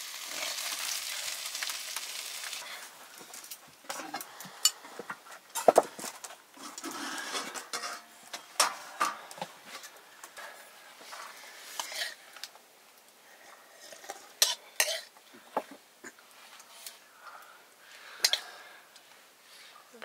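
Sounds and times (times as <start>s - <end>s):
metal spoon scraping a wok: 6.6s - 9.9s, 11.5s - 12.2s, 13.8s - 15.1s
spoon clinking on steel plates: 7.4s - 9.2s.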